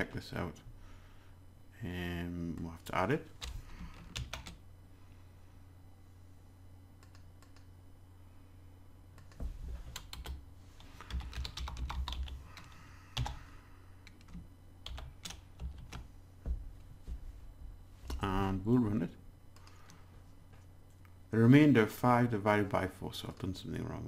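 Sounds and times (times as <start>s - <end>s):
low steady hum: 0.0s - 24.0s
keyboard typing: 3.4s - 4.6s, 7.0s - 7.7s, 9.2s - 13.4s, 14.0s - 16.1s.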